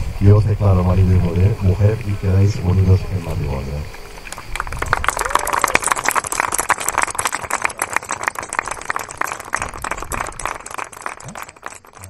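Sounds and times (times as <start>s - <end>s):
crowd applauding: 4.2s - 12.0s.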